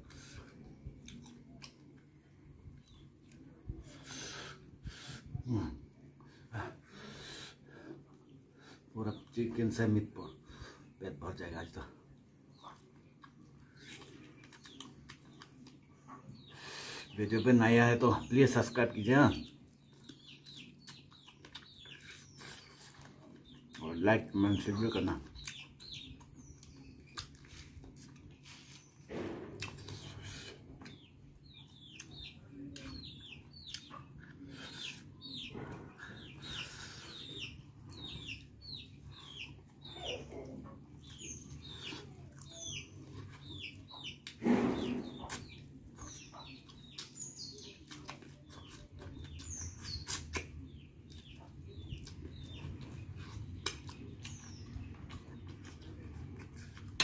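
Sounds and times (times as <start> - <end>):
chewing and sucking mouth sounds: 0.0 - 2.1, 12.5 - 16.9, 19.7 - 23.8, 25.4 - 29.0, 45.3 - 57.0
small birds chirping: 0.0 - 57.0
loud lip smacks: 50.0 - 50.6.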